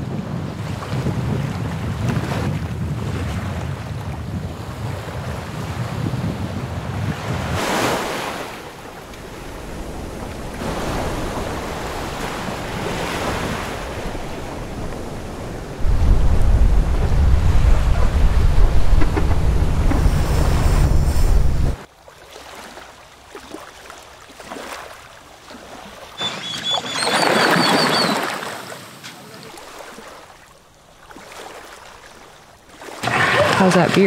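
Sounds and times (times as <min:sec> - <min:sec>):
wind buffeting microphone: 0:00.0 - 0:21.9
water rushing along hull: 0:00.0 - 0:34.0.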